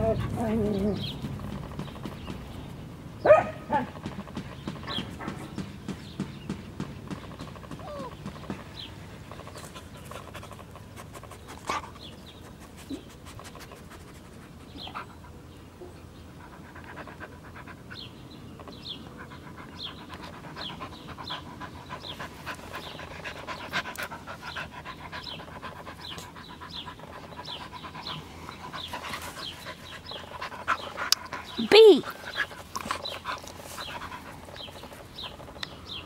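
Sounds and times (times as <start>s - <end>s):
dog panting: 0.0s - 2.5s, 7.8s - 15.5s, 16.3s - 18.3s, 19.0s - 35.6s.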